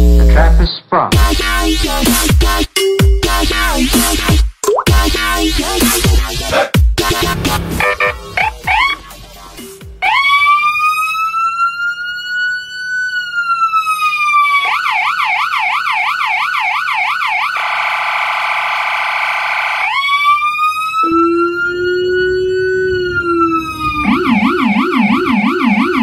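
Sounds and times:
electronic siren wailing and yelping: 7.8s - 9.2s, 10.0s - 26.0s.

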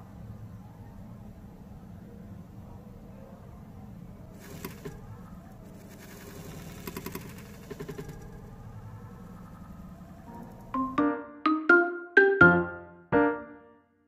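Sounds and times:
quick light clicks and scratches: 4.3s - 8.5s.

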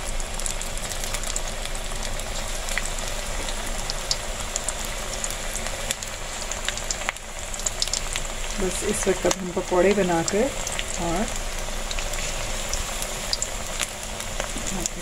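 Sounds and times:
food deep-frying in hot oil: 0.0s - 15.0s
oil crackling and popping: 0.0s - 15.0s.

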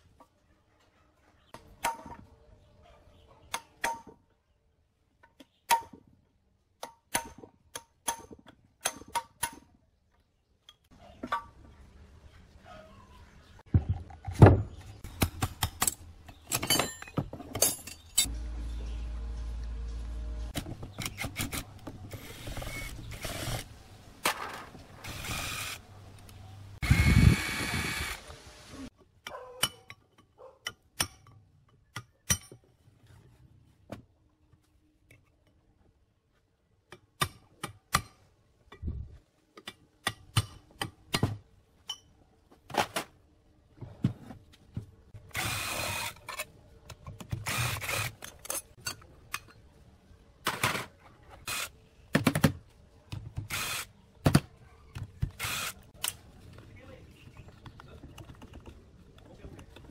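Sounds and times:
cordless drill whirring: 22.1s - 23.7s, 25.0s - 25.8s, 26.8s - 28.3s, 45.4s - 46.2s, 47.4s - 48.1s, 53.5s - 53.9s, 55.4s - 55.8s
hammer and chisel on metal: 29.3s - 32.6s.

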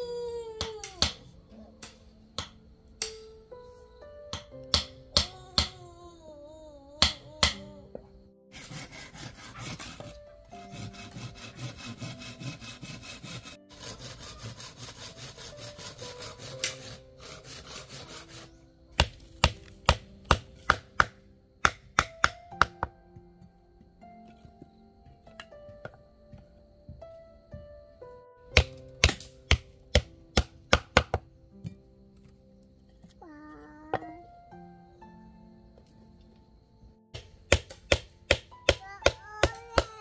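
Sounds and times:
soft background music: 0.0s - 40.0s
hammer striking wood: 4.3s - 5.8s, 19.0s - 22.9s, 28.6s - 31.2s, 37.2s - 40.0s
rapid rasping strokes: 8.5s - 18.6s.

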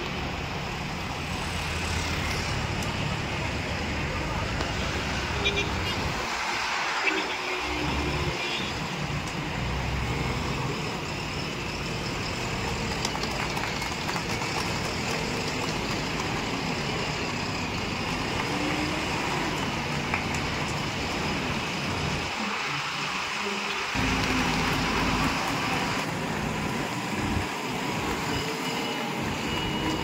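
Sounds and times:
diesel engine running: 9.6s - 28.3s.

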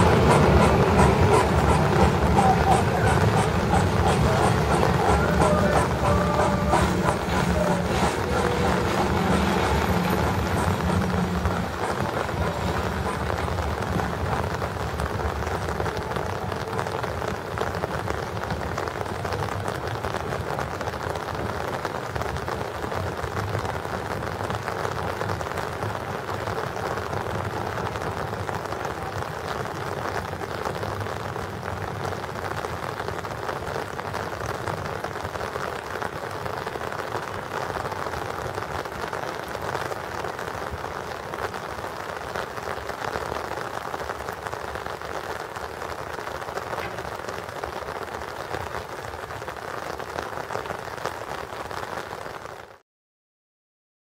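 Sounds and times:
steam train rumble: 0.0s - 23.9s, 46.4s - 47.8s
rain hissing: 0.0s - 52.8s.

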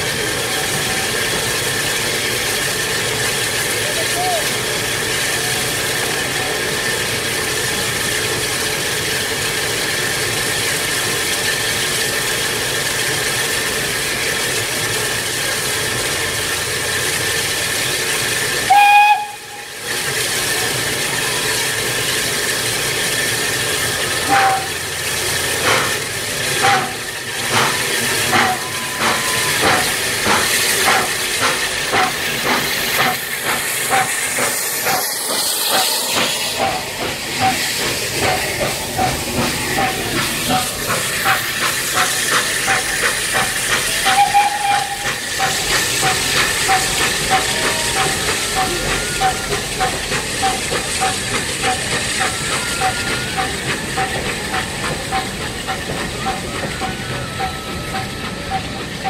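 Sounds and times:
hiss of escaping steam: 0.0s - 59.0s
locomotive exhaust chuffs: 0.0s - 59.0s
steam locomotive whistle: 18.6s - 19.8s, 24.2s - 25.0s, 26.6s - 30.1s, 42.5s - 55.2s, 56.2s - 59.0s.

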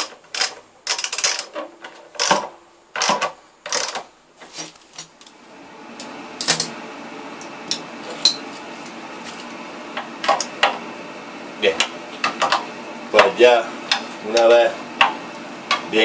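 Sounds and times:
ratchet wrench clicking: 0.3s - 1.5s, 3.0s - 4.0s.

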